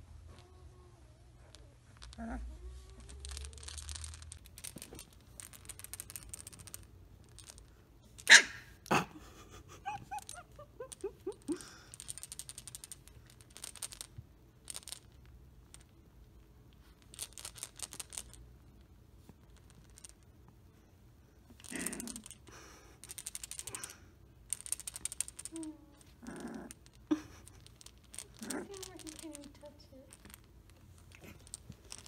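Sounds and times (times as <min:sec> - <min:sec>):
puppy yips: 0:08.3 - 0:08.7
puppy whimpering cries: 0:09.8 - 0:11.1.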